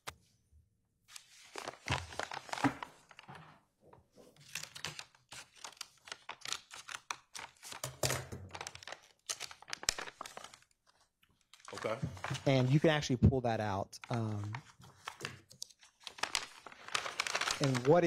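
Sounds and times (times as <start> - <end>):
packaging tearing and crinkling: 4.4 - 10.7, 16.0 - 18.0.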